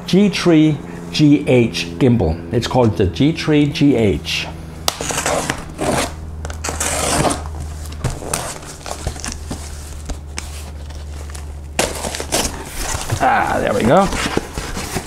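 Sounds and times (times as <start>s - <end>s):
packing tape tearing: 4.9s - 15.0s.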